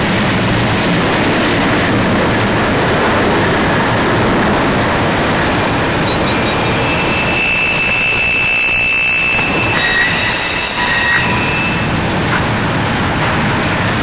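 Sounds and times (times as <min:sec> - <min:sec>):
freight train rumbling on rails: 0:00.0 - 0:14.0
high wheel squeals: 0:05.9 - 0:12.1.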